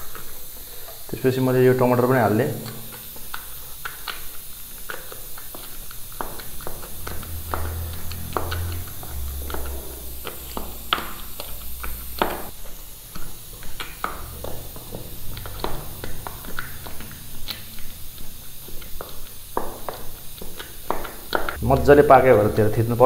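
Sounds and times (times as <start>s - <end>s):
utensil knocking against dish: 13.6s - 17.3s, 18.7s - 22.5s.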